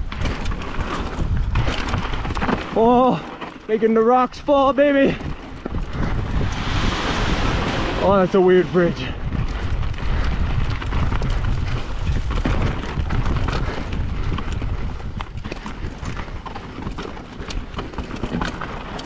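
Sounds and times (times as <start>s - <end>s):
bike knocking and rattling: 0.0s - 6.7s, 7.6s - 19.0s
bike tyres rumbling over rocks: 0.0s - 19.0s.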